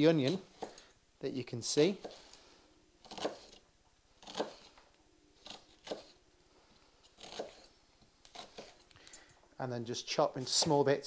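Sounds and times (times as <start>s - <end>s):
knife slicing onion on wooden board: 0.2s - 0.9s, 1.9s - 2.3s, 3.0s - 3.6s, 4.2s - 4.8s, 5.4s - 6.2s, 7.0s - 8.9s.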